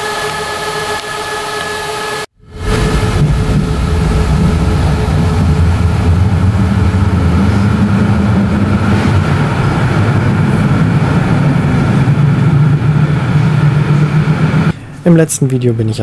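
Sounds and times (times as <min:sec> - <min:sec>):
tram wheels rumbling on rail: 0:02.4 - 0:14.7.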